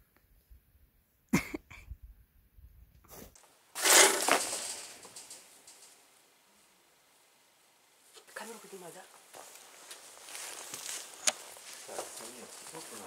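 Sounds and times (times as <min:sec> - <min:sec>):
wire trap rattling clatter: 0:03.8 - 0:06.0.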